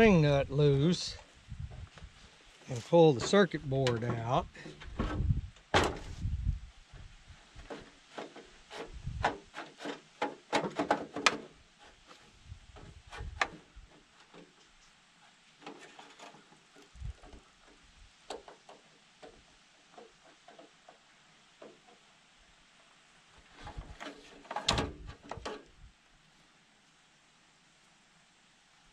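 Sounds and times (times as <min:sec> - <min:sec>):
light clicks and knocks: 0:01.9 - 0:06.1, 0:15.6 - 0:22.1
dull thump: 0:03.2 - 0:06.4
scraping: 0:07.4 - 0:22.0, 0:23.4 - 0:25.8.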